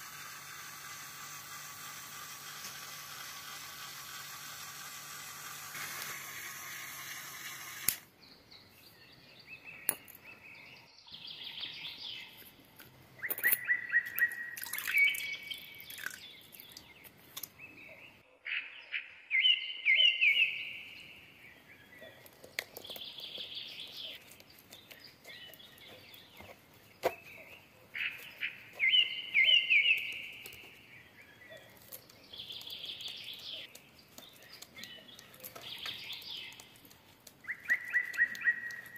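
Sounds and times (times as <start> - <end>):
small electric motor whirring: 0.0 - 8.1
bird chirping: 8.1 - 12.6, 13.2 - 38.9.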